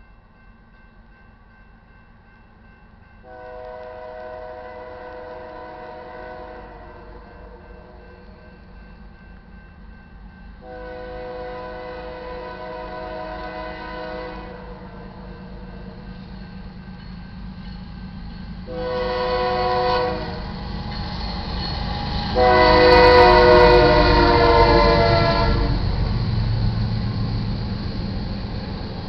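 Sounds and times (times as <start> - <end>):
locomotive air horn blasts: 3.3 - 8.0, 10.6 - 15.0, 18.7 - 20.6, 22.3 - 26.0
locomotive rumble: 10.7 - 29.0.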